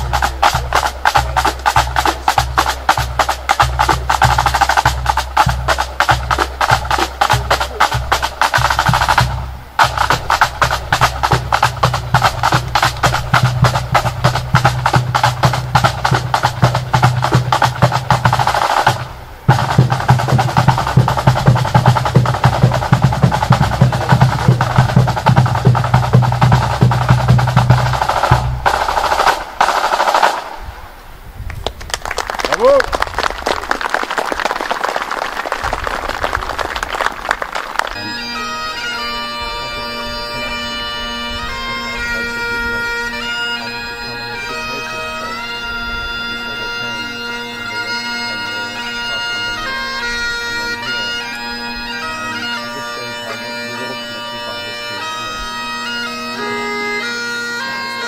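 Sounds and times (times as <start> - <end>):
bass drum beats: 0.0 - 30.2
snare drum rolls: 0.0 - 30.6.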